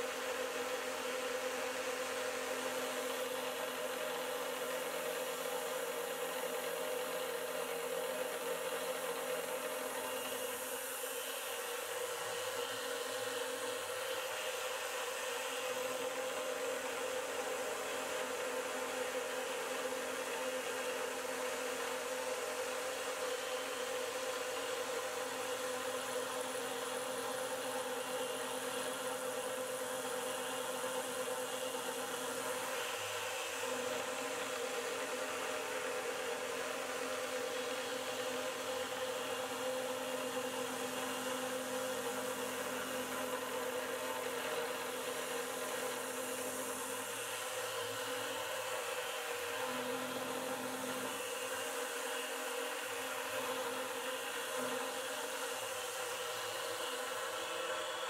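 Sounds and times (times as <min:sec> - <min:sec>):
mill spindle whine: 0:00.0 - 0:58.0.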